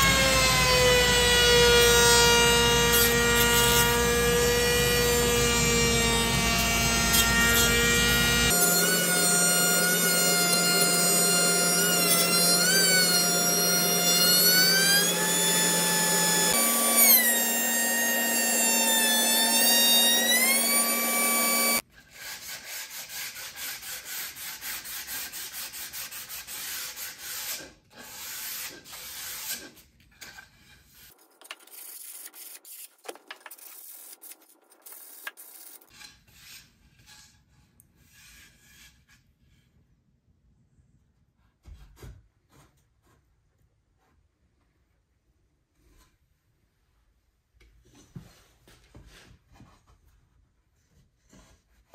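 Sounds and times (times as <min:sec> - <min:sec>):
router motor whining: 0:02.8 - 0:21.8
sandpaper rubbing strokes: 0:08.5 - 0:29.8.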